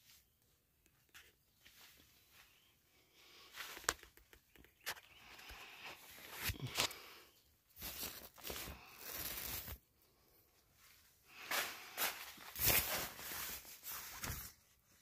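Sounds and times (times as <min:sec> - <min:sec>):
tent fabric rustling: 0:07.8 - 0:09.8, 0:10.9 - 0:15.0.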